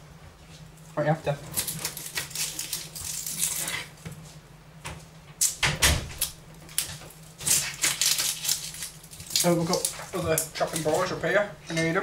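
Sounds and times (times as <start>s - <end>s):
onion rustling as cut: 6.2s - 11.2s.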